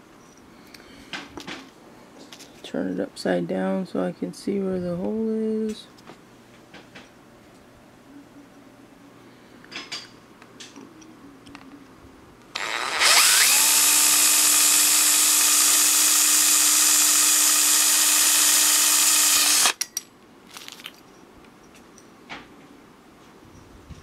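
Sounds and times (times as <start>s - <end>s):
cordless drill whining: 12.6s - 19.8s.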